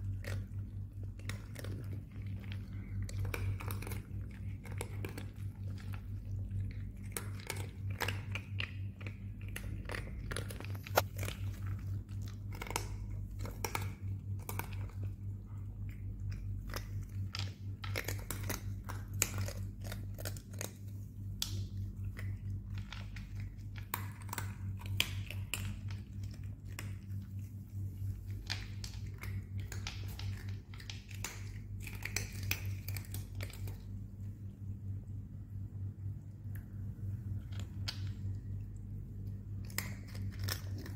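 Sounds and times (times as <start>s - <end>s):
cats crunching dry kibble: 0.0s - 40.9s
constant low hum: 0.0s - 40.9s.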